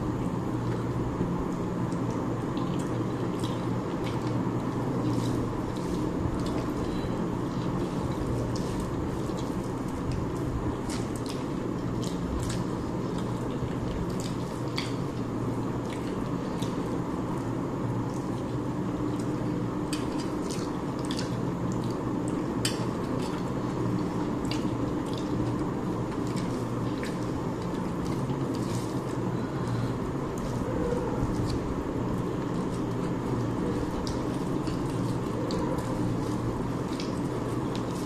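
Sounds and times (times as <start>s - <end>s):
low background hum: 0.0s - 38.0s
wet chewing and lip smacking: 19.9s - 29.2s.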